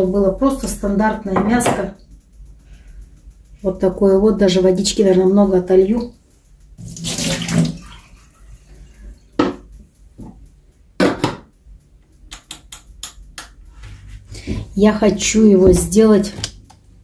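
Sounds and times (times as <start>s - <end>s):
water poured from saucepan: 6.8s - 8.2s
quick clicks: 12.1s - 13.6s.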